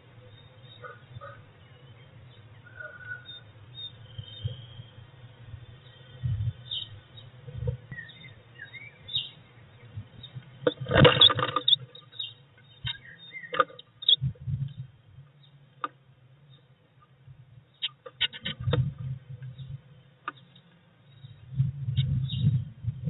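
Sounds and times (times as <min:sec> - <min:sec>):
faint bird chirps: 0:00.1 - 0:10.4, 0:11.0 - 0:15.6
bird wingbeats and scrabbling claws: 0:10.6 - 0:12.0.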